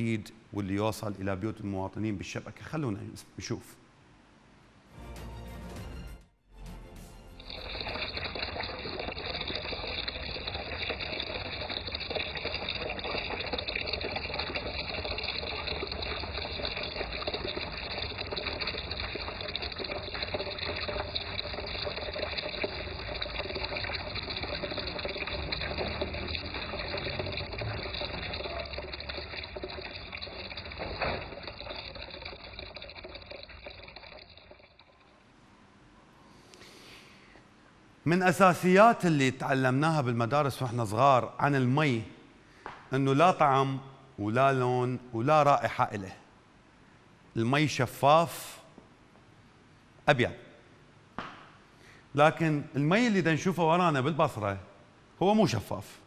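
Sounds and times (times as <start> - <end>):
tap water pouring into basin: 7.3 - 35.2
short knock: 51.2 - 51.6.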